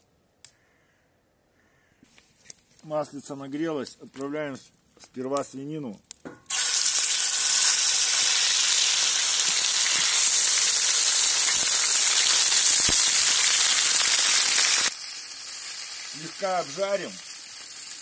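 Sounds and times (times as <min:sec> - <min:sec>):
meat sizzling in hot oil: 0:06.5 - 0:18.0.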